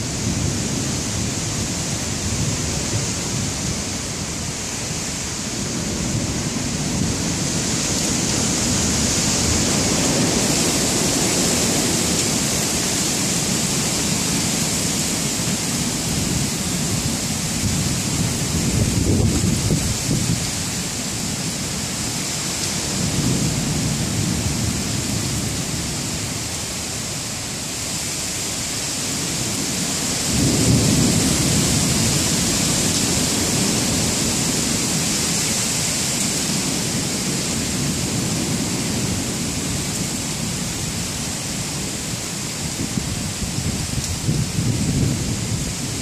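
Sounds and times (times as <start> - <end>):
steady rain hiss: 0.0 - 46.0
rolling thunder: 16.0 - 20.5, 30.2 - 35.1.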